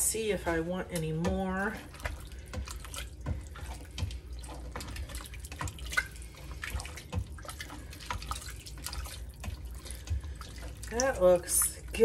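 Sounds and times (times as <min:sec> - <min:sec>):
wet sloshing: 0:00.0 - 0:12.0.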